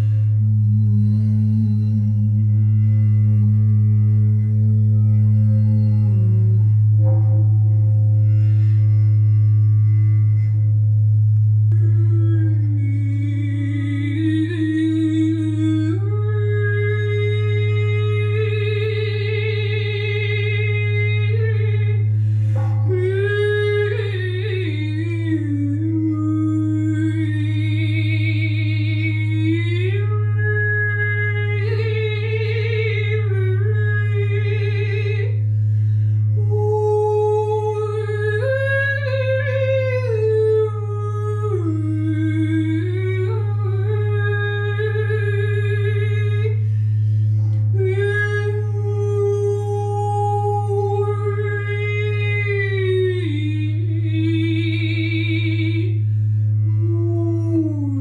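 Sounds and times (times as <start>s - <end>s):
singing bowl drone: 0.0s - 56.0s
woman singing wordless phrases: 47.7s - 56.0s.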